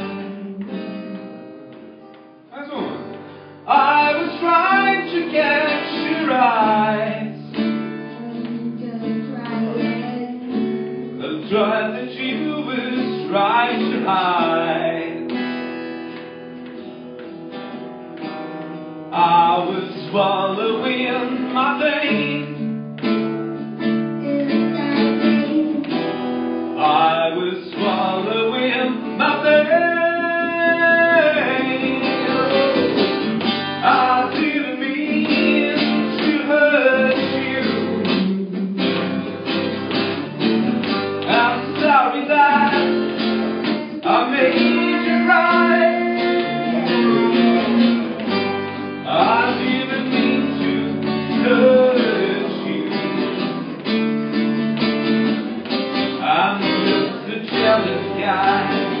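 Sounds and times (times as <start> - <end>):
acoustic guitar strumming: 0.0 - 59.0
harmonica melody: 23.4 - 26.7, 41.5 - 49.2.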